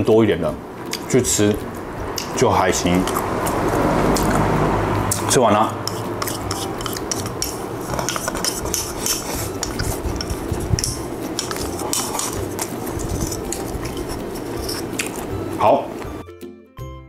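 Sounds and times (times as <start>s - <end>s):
chopsticks clicking on a bowl: 2.2s - 2.4s, 3.0s - 4.5s, 5.1s - 12.7s, 14.9s - 15.2s.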